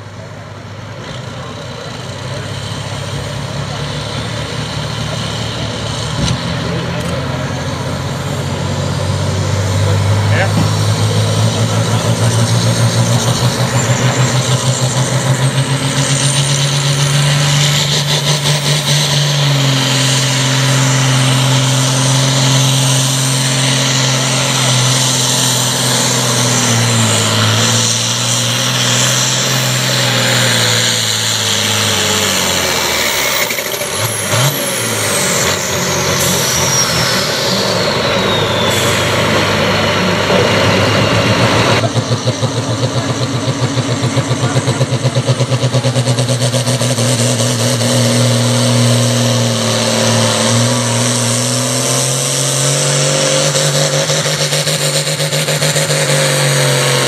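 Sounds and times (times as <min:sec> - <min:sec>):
tractor diesel engine at full throttle: 0:00.0 - 0:57.0.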